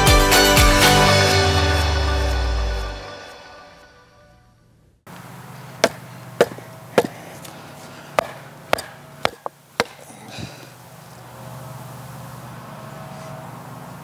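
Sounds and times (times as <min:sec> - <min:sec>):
music: 0:00.0 - 0:04.6.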